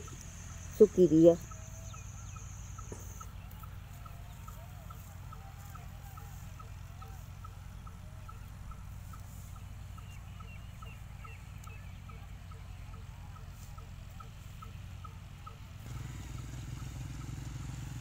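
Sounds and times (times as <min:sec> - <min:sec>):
high bird chirps: 0:00.0 - 0:05.1
steady low rumble: 0:00.0 - 0:15.8
wavering bird calls: 0:00.0 - 0:18.0.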